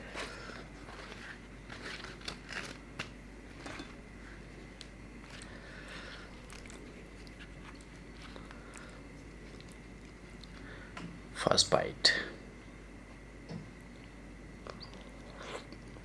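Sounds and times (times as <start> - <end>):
flatbread rustling and crackling: 0.0 - 10.5.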